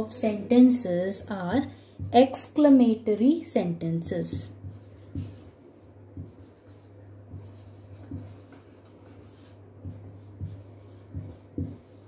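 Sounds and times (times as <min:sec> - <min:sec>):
steady low hum: 0:00.0 - 0:12.0
marker scratching on whiteboard: 0:04.1 - 0:05.6, 0:06.2 - 0:12.0.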